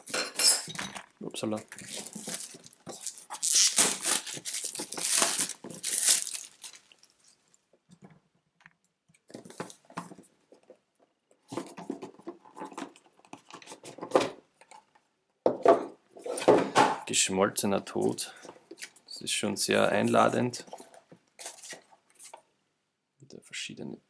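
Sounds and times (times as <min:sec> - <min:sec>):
plastic shrink-wrap crinkling: 0:01.5 - 0:07.6.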